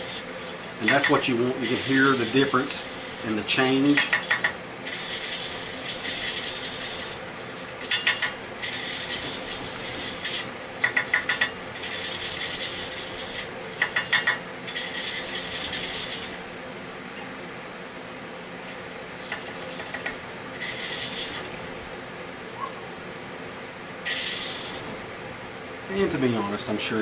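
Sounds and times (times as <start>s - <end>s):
gritty rubbing of valve lapping: 0.0s - 3.3s, 4.3s - 7.2s, 8.6s - 16.4s, 19.2s - 21.5s, 24.1s - 24.9s.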